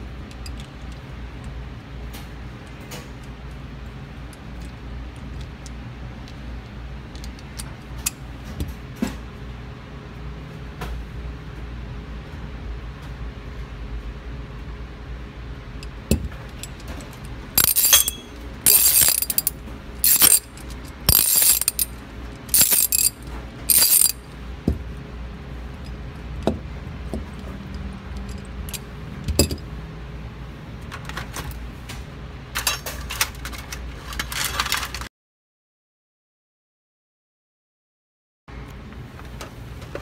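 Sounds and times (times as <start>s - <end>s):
handling noise: 16.1s - 24.9s, 28.2s - 29.7s
ratchet wrench clicking: 17.6s - 21.9s, 22.5s - 24.2s.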